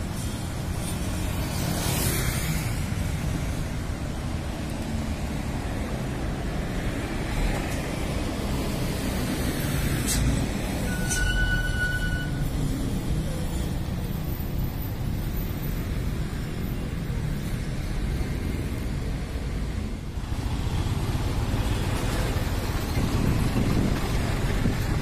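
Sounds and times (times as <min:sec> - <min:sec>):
road traffic passing: 0:00.0 - 0:25.0
heavy truck passing: 0:19.6 - 0:25.0.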